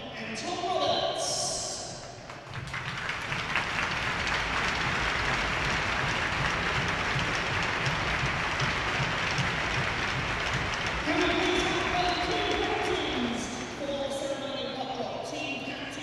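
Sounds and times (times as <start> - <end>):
crowd applauding: 2.1 - 13.8.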